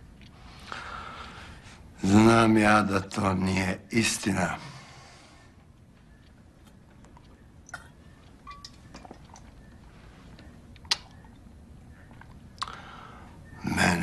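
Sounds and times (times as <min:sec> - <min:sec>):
glass bottle noises: 0:07.7 - 0:09.6.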